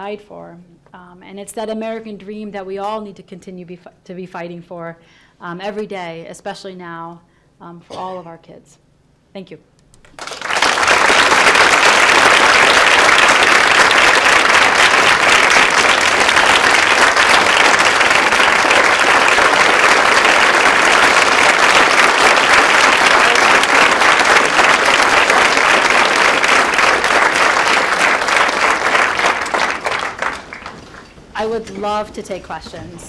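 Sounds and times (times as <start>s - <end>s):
audience applauding: 10.1s - 31.2s.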